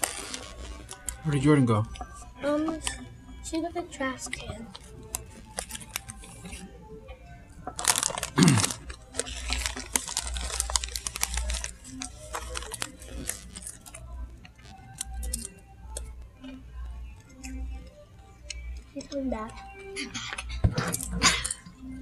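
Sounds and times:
foil snack bags crinkling: 5.1s - 6.4s, 7.7s - 14.1s, 14.9s - 15.5s.

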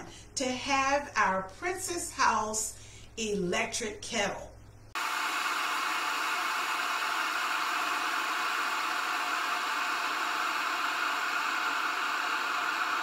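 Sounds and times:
electric kettle heating water: 5.0s - 13.0s.

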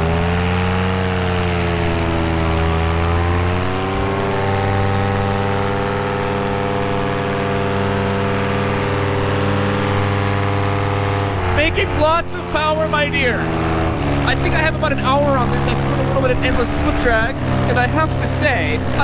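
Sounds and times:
paramotor engine and propeller: 0.0s - 19.0s.

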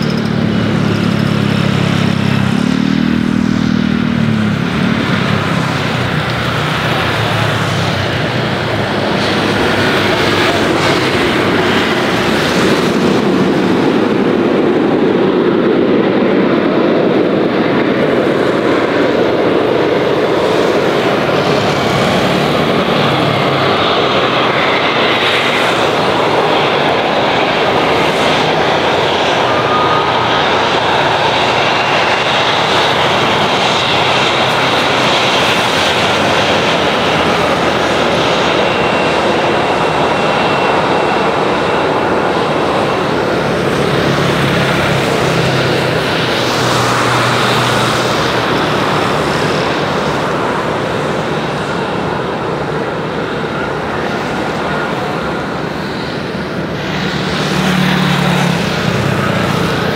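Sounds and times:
small engine humming and revving: 0.0s - 14.0s
jet engine roar: 0.0s - 59.9s.

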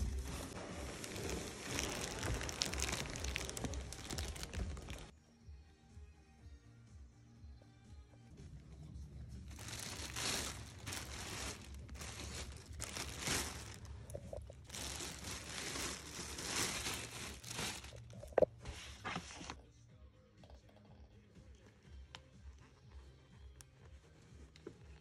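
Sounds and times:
plastic bag crinkling: 0.0s - 5.1s, 9.5s - 18.5s.

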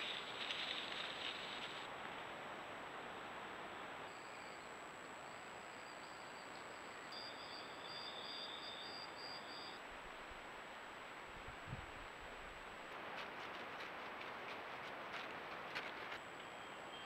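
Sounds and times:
microphone hiss: 0.0s - 17.0s
insect chirping: 4.1s - 9.8s.

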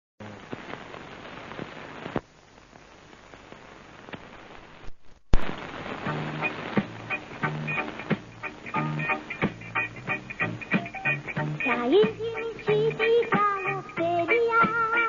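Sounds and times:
film soundtrack hiss and crackle: 0.2s - 15.0s
loud pop: 5.3s - 7.0s
music: 6.0s - 15.0s.

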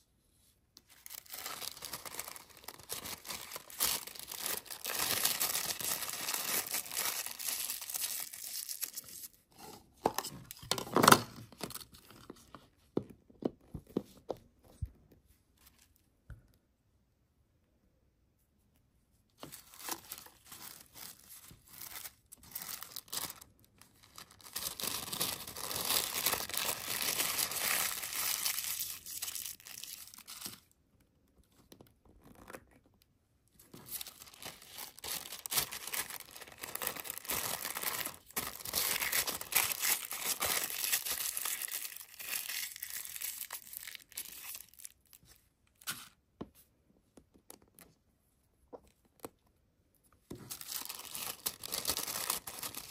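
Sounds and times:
plastic wrapping crinkling: 0.9s - 9.3s, 19.4s - 30.8s, 33.7s - 45.3s, 50.4s - 52.9s.

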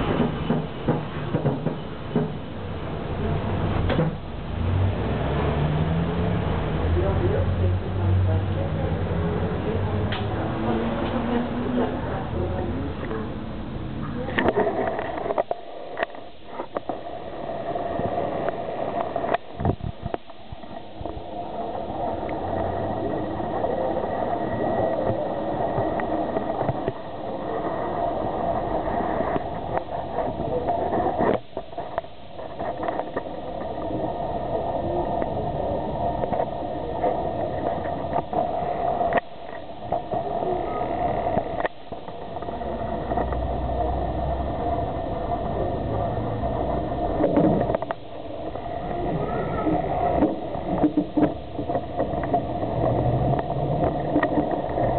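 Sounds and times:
tram rumbling on rails: 0.0s - 13.5s.

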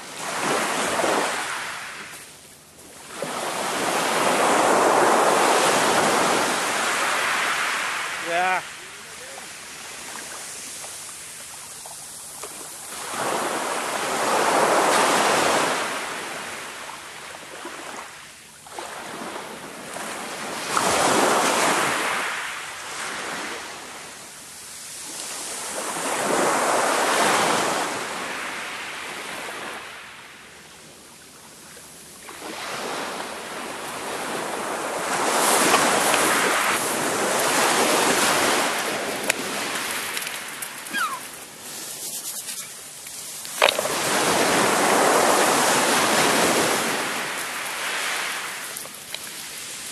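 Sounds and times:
waves breaking on shingle: 35.2s - 49.8s.

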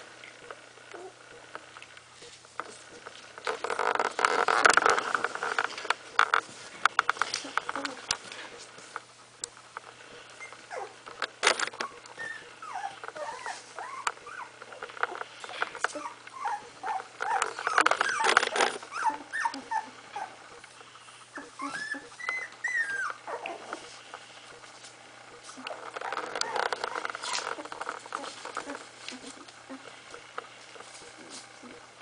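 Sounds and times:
clicks and rustles: 0.2s - 16.5s, 17.1s - 19.7s, 21.8s - 31.9s
puppies squeaking and whimpering: 0.9s - 1.2s, 10.2s - 24.0s, 25.5s - 30.3s.

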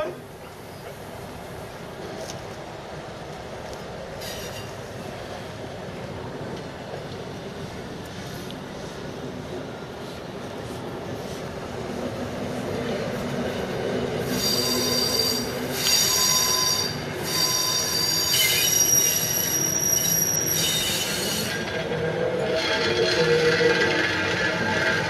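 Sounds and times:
train rumble: 0.0s - 25.0s
train wheels squealing on rails: 4.2s - 5.0s, 14.2s - 25.0s.

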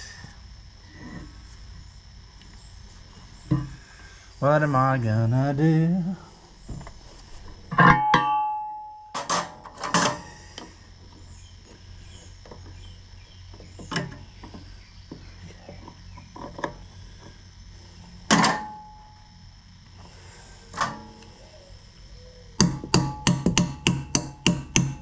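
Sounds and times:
loud ringing clang: 7.7s - 10.2s, 18.3s - 19.4s
metal tools clanking on metal: 7.7s - 10.3s.

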